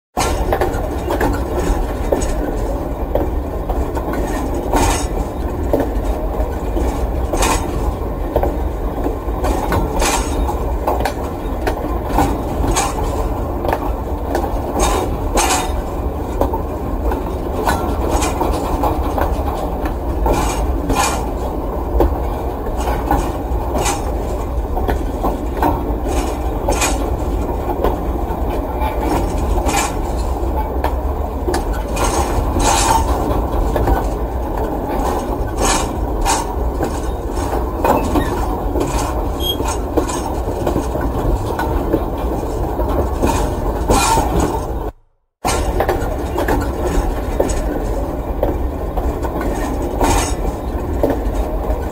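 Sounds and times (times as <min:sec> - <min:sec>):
freight train cars rumbling: 0:00.1 - 0:51.9
metal scraping: 0:34.9 - 0:41.0
metallic knocks: 0:37.8 - 0:41.7.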